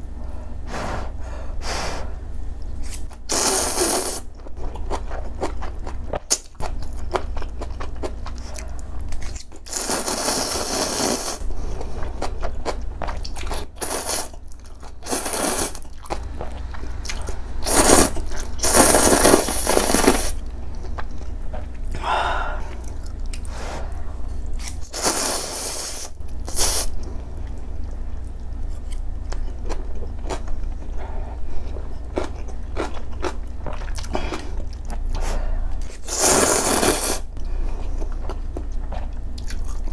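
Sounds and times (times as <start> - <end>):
person slurping noodles: 2.9 - 4.2, 9.7 - 11.4, 36.0 - 37.3
chewing: 37.7 - 39.9.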